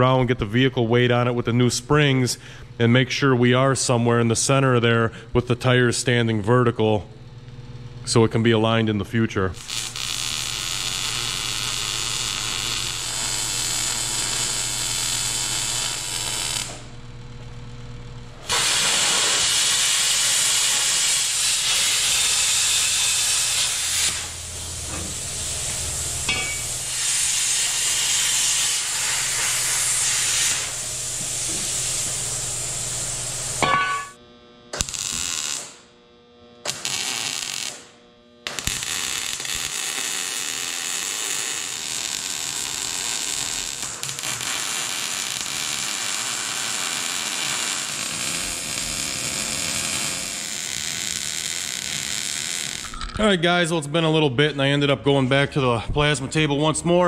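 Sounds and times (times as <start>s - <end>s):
loud metalworking hissing: 18.4s - 34.2s.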